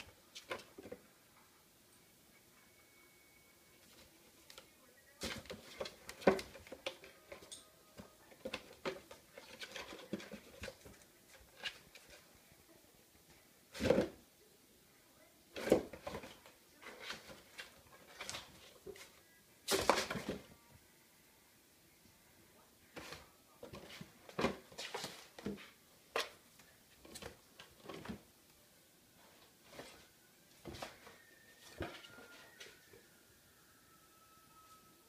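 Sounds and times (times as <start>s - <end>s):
cat scratching cardboard: 8.3s - 12.3s.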